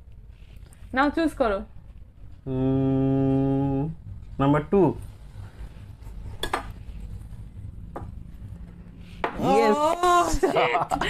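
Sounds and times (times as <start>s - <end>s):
laughter: 10.0s - 11.0s.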